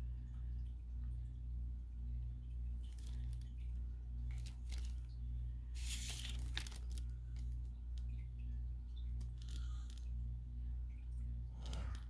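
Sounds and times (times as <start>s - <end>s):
low pulsing hum: 0.0s - 12.0s
paper sliding and rustling: 5.8s - 7.0s.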